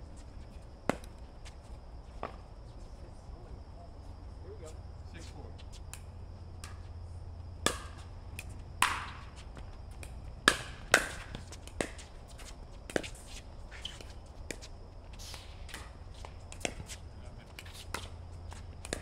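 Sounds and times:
paddles hitting plastic ball: 0:07.6 - 0:13.3, 0:15.6 - 0:19.0.

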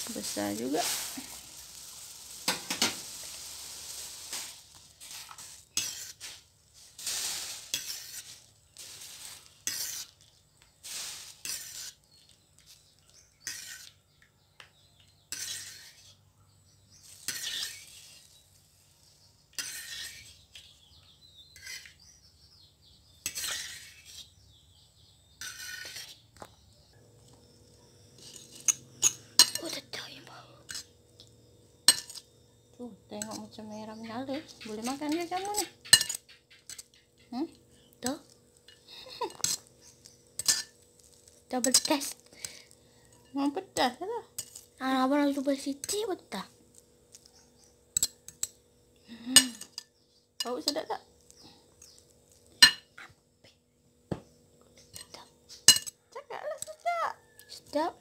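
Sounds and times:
utensils scraping and clinking: 0:00.0 - 0:12.8, 0:13.4 - 0:14.0, 0:15.2 - 0:16.2, 0:17.0 - 0:18.4, 0:19.5 - 0:20.7, 0:21.5 - 0:22.0, 0:23.2 - 0:24.4, 0:25.4 - 0:26.2, 0:28.1 - 0:30.0, 0:30.6 - 0:31.0, 0:31.8 - 0:32.3, 0:33.2 - 0:37.0, 0:38.0 - 0:44.9, 0:47.2 - 0:48.6, 0:54.8 - 0:56.0
noodles bubbling in a wok: 0:00.0 - 0:14.4, 0:16.8 - 0:20.8.

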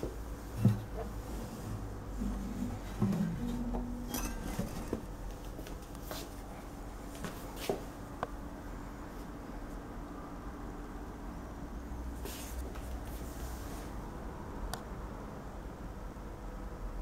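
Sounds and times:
acoustic guitar low tones: 0:00.0 - 0:06.9.

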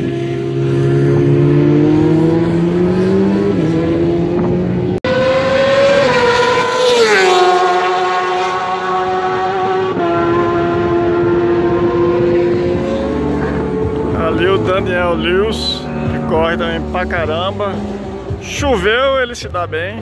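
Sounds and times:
motorbike passing by: 0:00.0 - 0:18.4
racing motorbike engines: 0:00.0 - 0:20.0.

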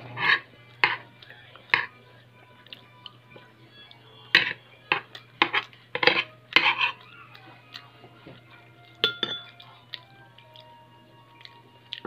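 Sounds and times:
metal spoon scraping a plate: 0:00.1 - 0:01.0, 0:04.4 - 0:07.0.

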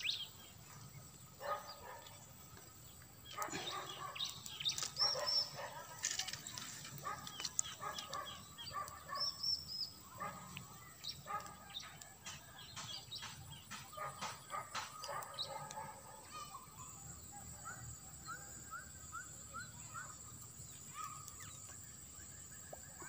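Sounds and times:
distant dogs barking: 0:00.0 - 0:23.0.

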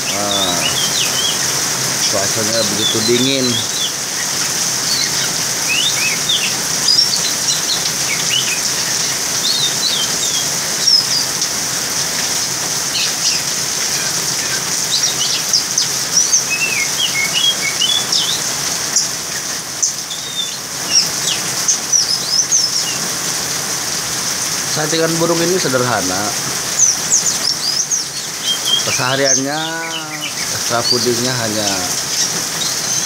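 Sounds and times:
steady rain: 0:00.0 - 0:33.0
bird whistles and chirps: 0:04.9 - 0:11.3, 0:14.9 - 0:23.0, 0:26.8 - 0:31.0.

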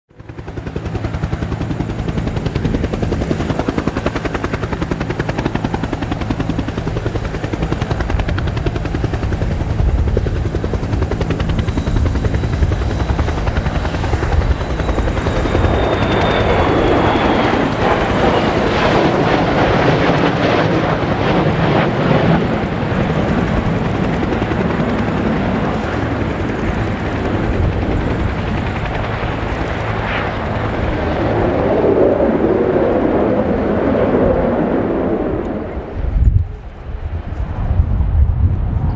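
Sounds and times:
jets flying past: 0:28.9 - 0:38.9.

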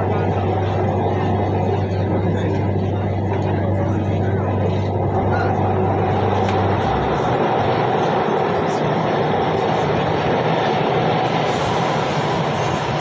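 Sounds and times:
train rumbling inside carriage: 0:00.0 - 0:13.0.

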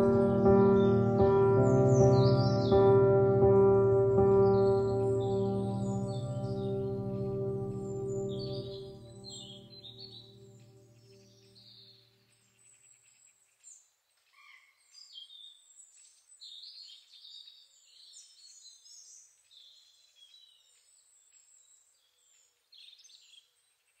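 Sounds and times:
soft sustained music chord: 0:00.0 - 0:11.9.

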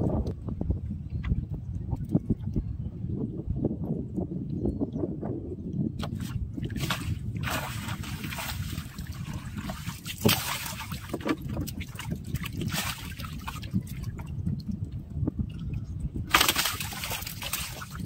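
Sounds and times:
fish splashing in water: 0:06.1 - 0:14.3, 0:16.3 - 0:18.0.

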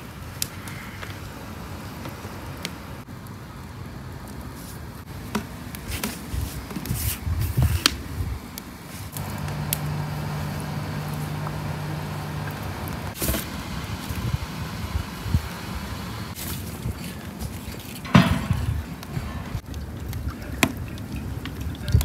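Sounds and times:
vehicle engine humming: 0:09.1 - 0:16.4.

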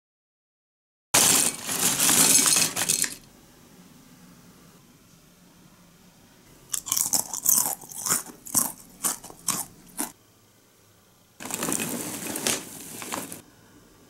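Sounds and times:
popcorn pouring onto a plate: 0:01.2 - 0:03.2, 0:11.4 - 0:13.4
crunchy snack being chewed: 0:06.7 - 0:10.2.

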